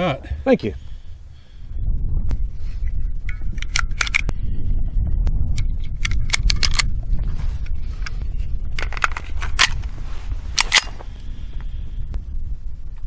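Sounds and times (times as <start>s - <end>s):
wind rumble on microphone: 0.0s - 13.0s
cartridges clicking into magazine: 3.5s - 4.3s, 6.0s - 6.9s, 10.6s - 10.9s.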